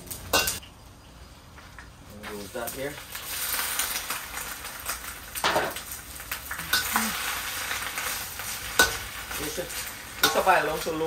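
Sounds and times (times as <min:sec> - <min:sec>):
vegetables sizzling in hot oil: 0:00.0 - 0:00.6, 0:02.1 - 0:11.0.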